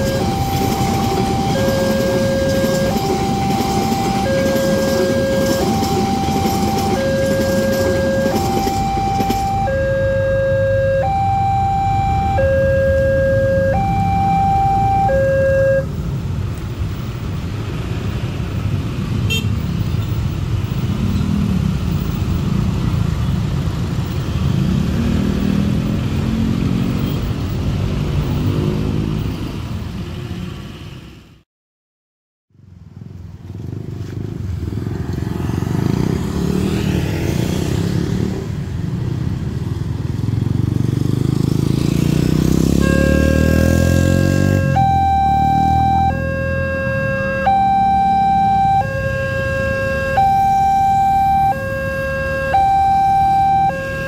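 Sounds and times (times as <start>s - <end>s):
level crossing alarm: 0.0s - 16.0s, 42.6s - 54.0s
motorcycles passing: 0.0s - 30.5s, 33.0s - 54.0s
cars passing: 0.0s - 31.4s, 32.8s - 54.0s.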